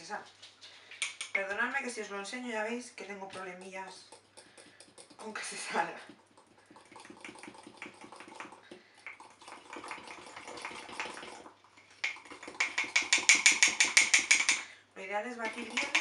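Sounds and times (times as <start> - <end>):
fork beating batter in a mug: 3.4 - 9.2, 12.0 - 14.7, 15.4 - 16.0.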